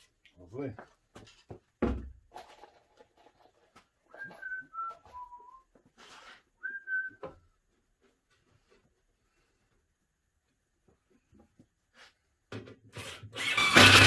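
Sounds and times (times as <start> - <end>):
person whistling: 4.1 - 5.7, 6.6 - 7.4.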